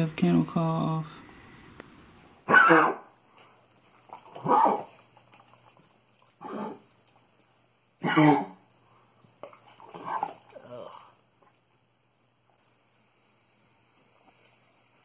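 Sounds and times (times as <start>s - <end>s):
dog honking cough: 2.4s - 3.1s, 4.4s - 4.9s, 8.0s - 8.6s.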